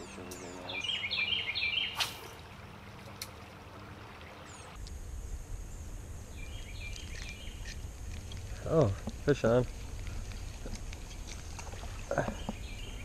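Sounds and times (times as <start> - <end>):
flowing river water: 0.0 - 4.8, 9.1 - 13.0
songbird chirping: 0.0 - 5.0, 5.6 - 13.0.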